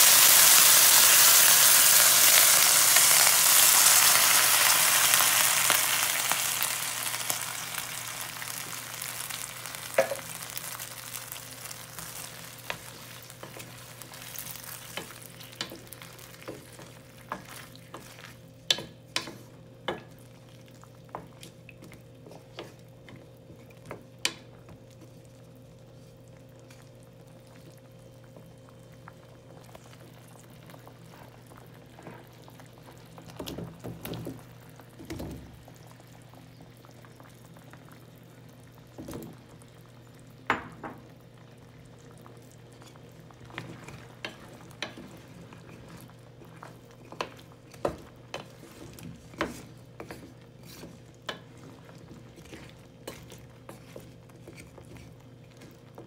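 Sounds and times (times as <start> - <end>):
milk sizzling in hot pot: 0.0 - 56.0
wooden spatula stirring: 8.7 - 26.9, 42.3 - 56.0.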